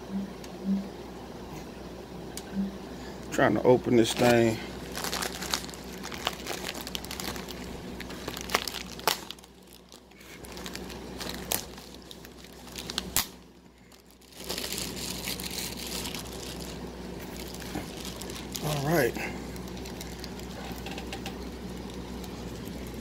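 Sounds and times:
container crinkling and rustling: 4.0 - 13.3, 13.9 - 23.0.

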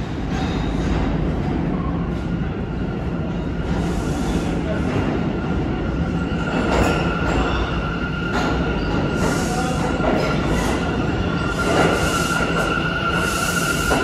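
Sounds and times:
train wheels rumbling on rails: 0.0 - 14.0.

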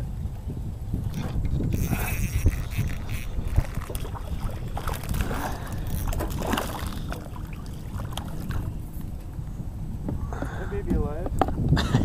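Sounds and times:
low wind rumble on microphone: 0.0 - 12.0
fish splashing at water surface: 1.9 - 9.1.

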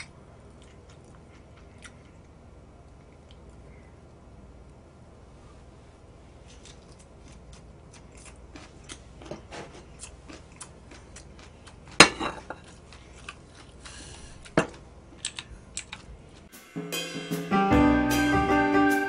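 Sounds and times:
chewing and mouth clicks: 0.0 - 3.6, 6.5 - 16.5
music: 16.5 - 19.0.

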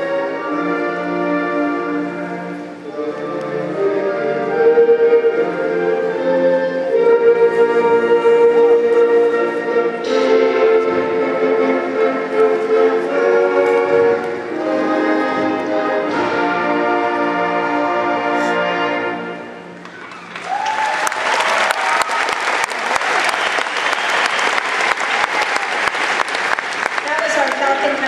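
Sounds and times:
concert band chords: 0.0 - 19.9
audience applause: 19.9 - 28.0.

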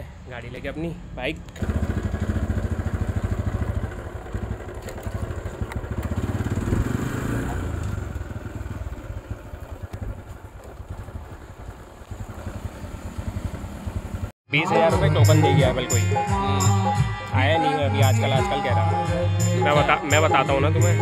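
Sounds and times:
motorcycle engine running: 1.4 - 14.4.

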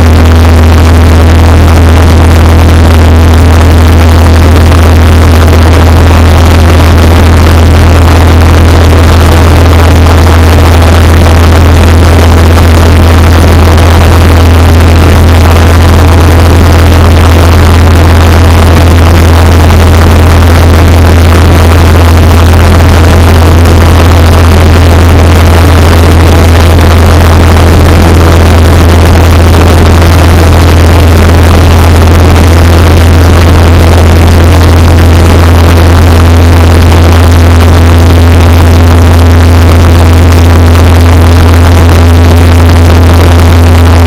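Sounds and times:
aircraft engine drone in cabin: 0.0 - 44.0.

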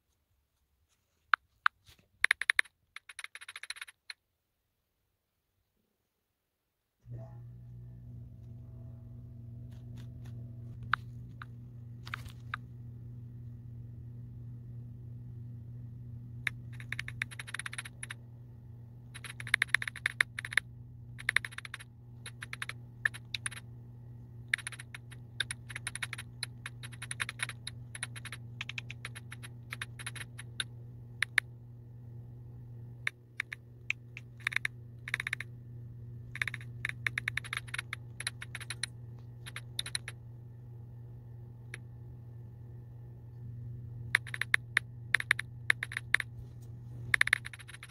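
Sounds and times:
phone keyboard typing clicks: 1.3 - 4.2, 16.4 - 18.2, 19.1 - 23.6, 24.4 - 31.5, 33.0 - 35.5, 36.3 - 40.2, 44.1 - 46.3, 47.1 - 47.9
steady low hum: 7.0 - 47.9.

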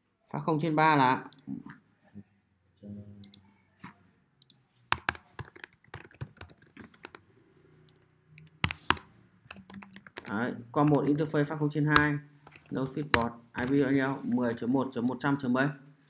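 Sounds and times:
computer keyboard typing: 4.4 - 7.2, 7.9 - 11.3, 11.9 - 13.8.

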